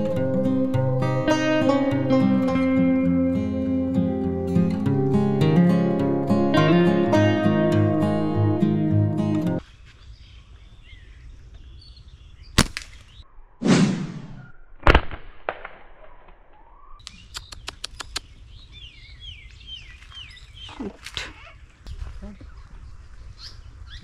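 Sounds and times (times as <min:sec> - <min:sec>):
birds chirping: 0:08.0 - 0:13.3, 0:16.9 - 0:24.0
sharp clicks: 0:17.0 - 0:18.2.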